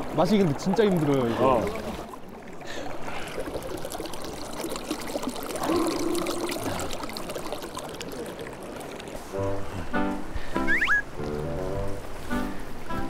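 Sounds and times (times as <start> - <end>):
small water splashes: 0.0 - 12.9
river trickling over stones: 0.0 - 13.0
music: 9.4 - 13.0.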